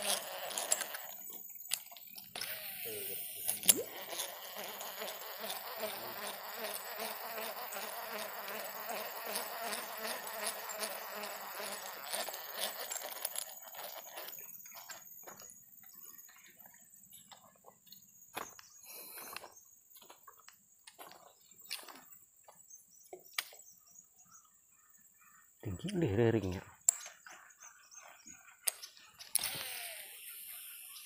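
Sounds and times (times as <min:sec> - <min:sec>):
insect buzzing: 0:00.0 - 0:16.4, 0:24.8 - 0:31.0.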